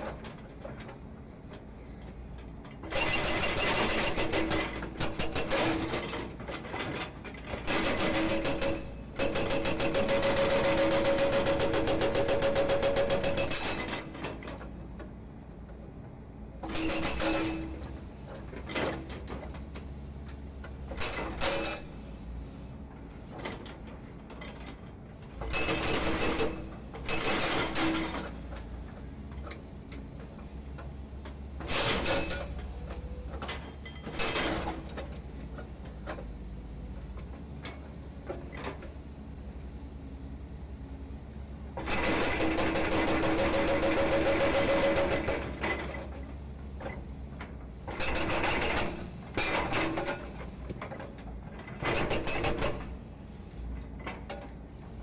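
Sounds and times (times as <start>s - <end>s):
hydraulic breaker hammering concrete: 2.9s - 6.1s, 7.6s - 14.2s, 25.5s - 28.2s, 41.8s - 46.0s, 47.9s - 50.4s, 51.8s - 53.0s.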